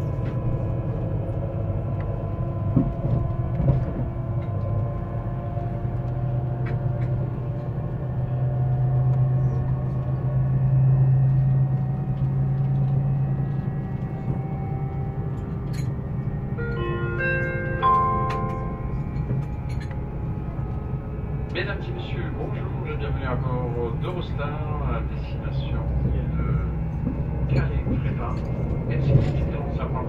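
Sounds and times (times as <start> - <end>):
low rumble of train: 0.0 - 30.0.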